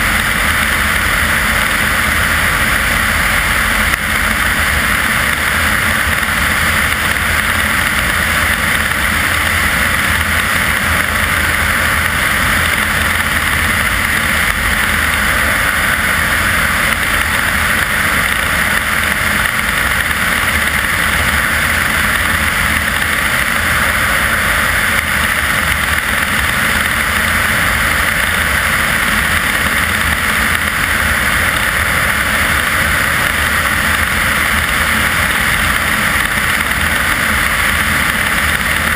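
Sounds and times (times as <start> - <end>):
propeller airplane engine drone: 0.0 - 38.9.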